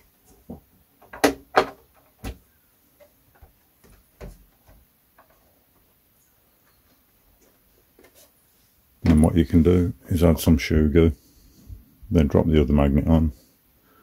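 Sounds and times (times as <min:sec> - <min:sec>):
plastic knocks and clicks: 0:00.5 - 0:02.4.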